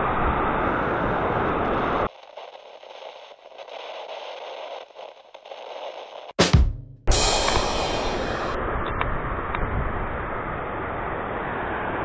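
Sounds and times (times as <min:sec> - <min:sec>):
faint crackling hiss: 0:02.1 - 0:06.4.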